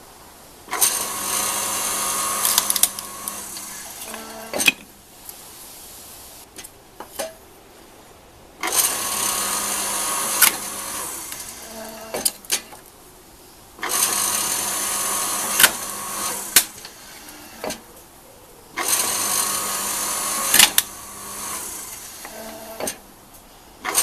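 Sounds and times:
log splitter motor running: 0.7s - 4.8s, 8.6s - 12.4s, 13.8s - 17.8s, 18.8s - 23.0s
wood cracking as it splits: 2.4s - 3.5s.

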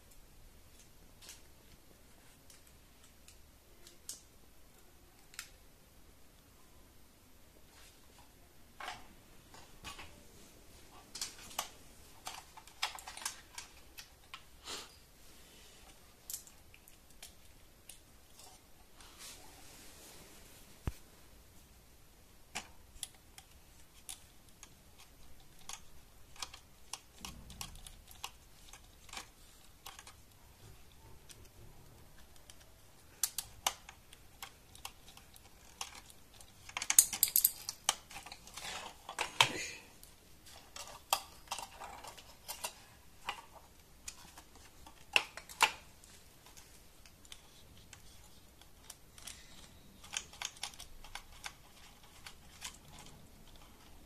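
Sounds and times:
rustling: 7.6s - 54.0s
hard plastic parts clicking: 11.1s - 14.5s, 22.5s - 39.5s, 40.4s - 54.0s.

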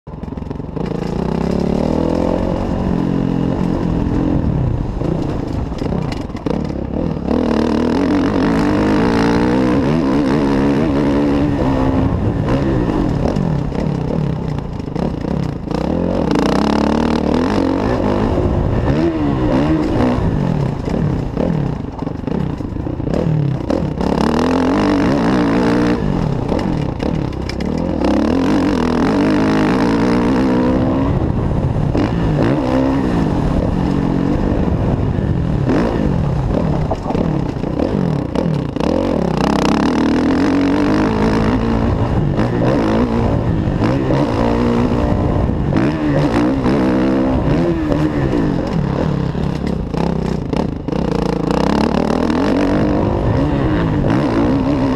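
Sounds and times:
motocross bike engine revving: 0.1s - 54.9s.

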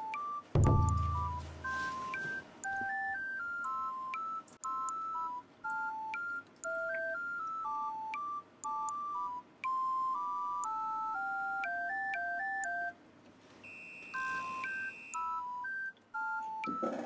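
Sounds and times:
electronic beeping melody: 0.0s - 13.0s.

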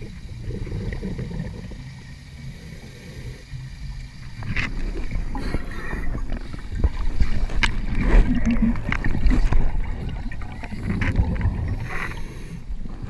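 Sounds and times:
rush of hissing noise: 0.0s - 6.8s
underwater low rumble: 0.0s - 13.0s.

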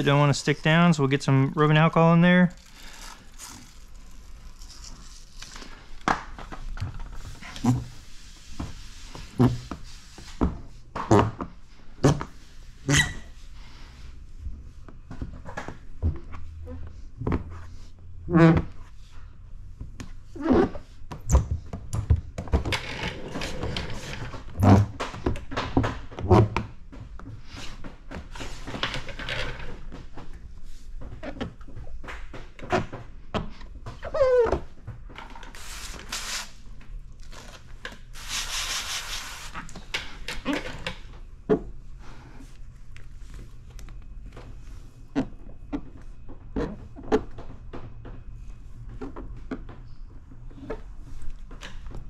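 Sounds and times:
spray bottle hissing: 38.2s - 39.6s.

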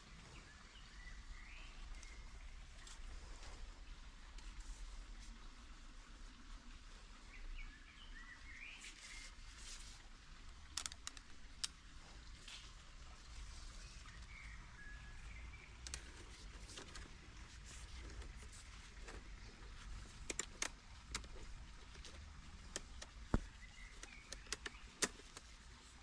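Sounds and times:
birds chirping: 13.1s - 26.0s.

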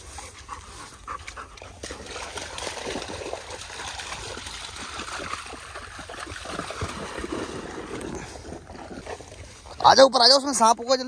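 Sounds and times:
dogs splashing through water: 0.0s - 10.8s.

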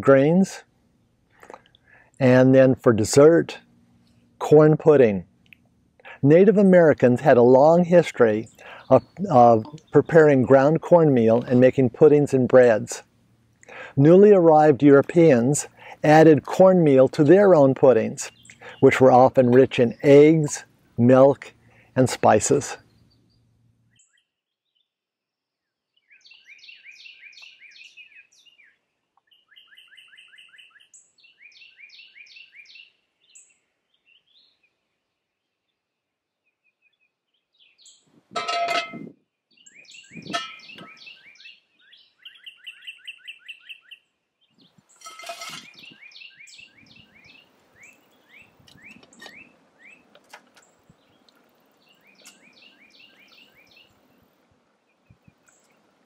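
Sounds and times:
songbirds chirping trills: 0.0s - 56.0s
loud clanks: 38.3s - 39.1s, 40.2s - 41.0s.

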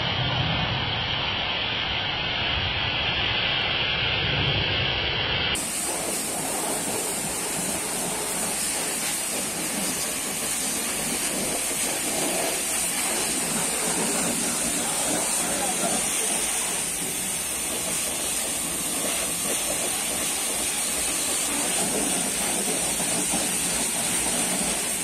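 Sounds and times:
pressure washer spray hissing: 5.6s - 25.0s.

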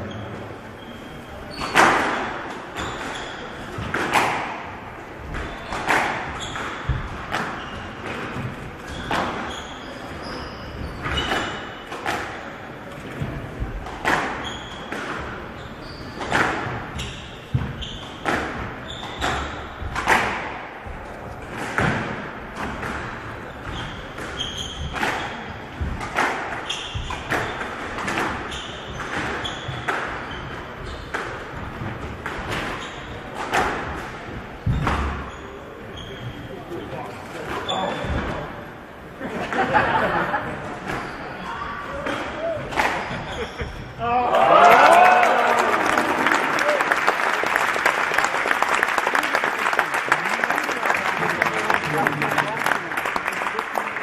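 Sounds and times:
shoes squeaking on court floor: 0.0s - 38.8s, 40.8s - 44.0s
squash ball hits echoing: 1.5s - 15.4s, 16.0s - 35.4s, 42.0s - 43.6s.

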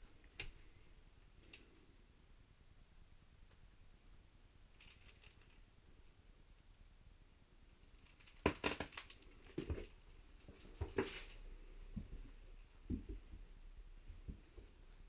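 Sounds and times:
faint crinkling: 4.7s - 6.8s, 7.7s - 12.5s.

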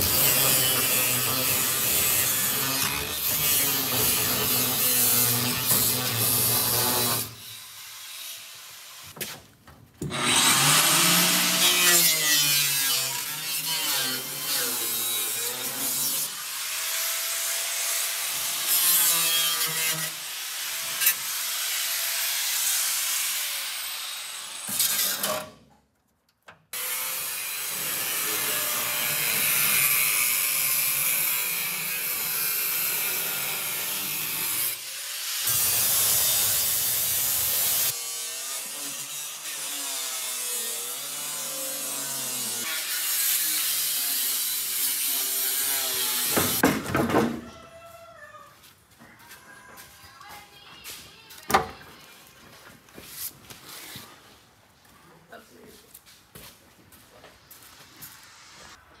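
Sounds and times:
angle grinder cutting sheet metal: 0.0s - 9.2s, 10.0s - 25.6s, 26.8s - 46.6s.

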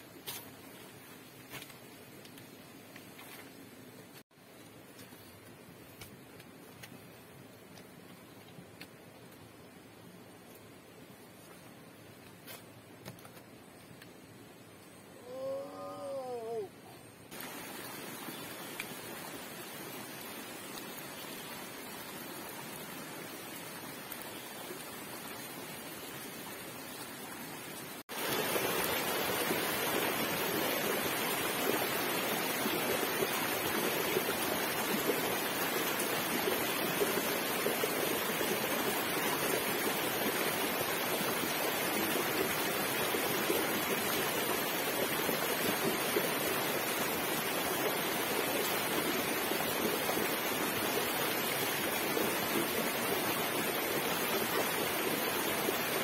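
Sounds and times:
faint outdoor hiss: 0.0s - 56.0s
stream rushing over rocks: 17.3s - 56.0s.

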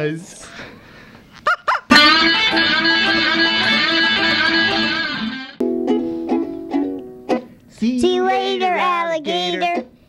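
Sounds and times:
electric guitar chord: 1.9s - 5.8s.

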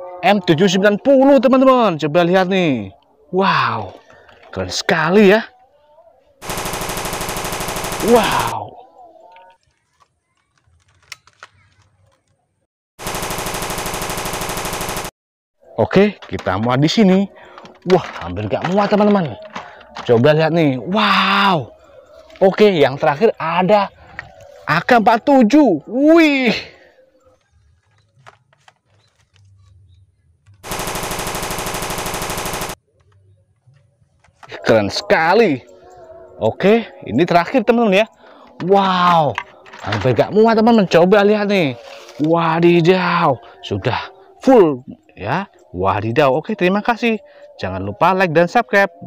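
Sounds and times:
toy machine gun firing: 6.4s - 8.6s, 13.0s - 15.1s, 30.6s - 32.8s
faint clicks: 9.3s - 12.4s.

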